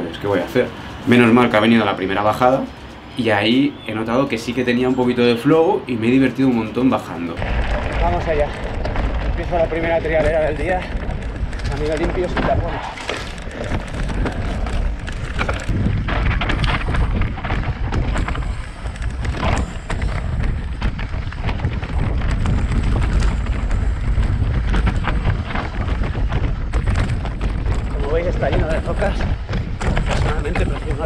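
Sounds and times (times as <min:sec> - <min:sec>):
bike rattling over stones: 0:06.9 - 0:31.0
wind on microphone: 0:07.1 - 0:31.0.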